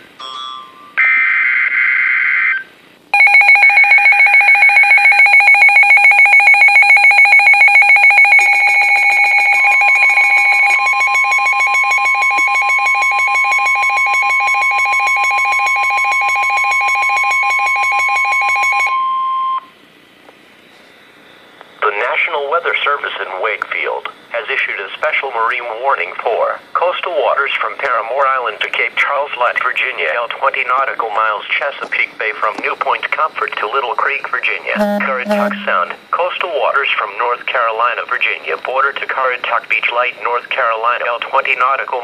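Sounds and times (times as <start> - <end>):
steady warning alarm tone: 3.2 - 19.2, 34.8 - 36.0
loud pulsing alarm beeps: 3.2 - 19.7, 34.8 - 36.0
shrill warbling data burst: 34.8 - 36.0.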